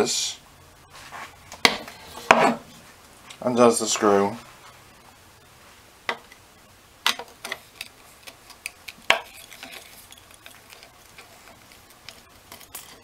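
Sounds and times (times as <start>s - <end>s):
screwdriver clicking and scraping: 7.4s - 13.0s.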